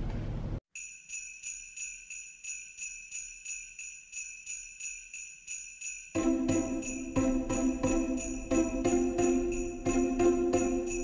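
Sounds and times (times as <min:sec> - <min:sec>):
sleigh bells jingling: 0:00.7 - 0:11.0.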